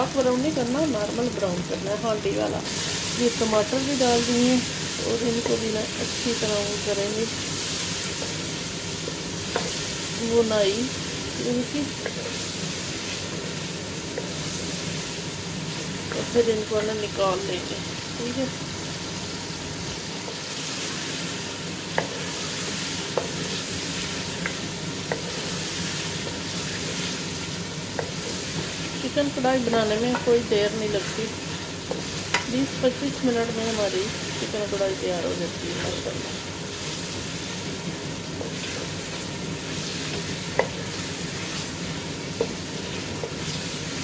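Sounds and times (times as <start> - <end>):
vegetables sizzling in hot oil: 0.0 - 44.0
wooden spoon stirring and scraping: 11.9 - 15.0, 22.0 - 32.8, 38.3 - 43.7.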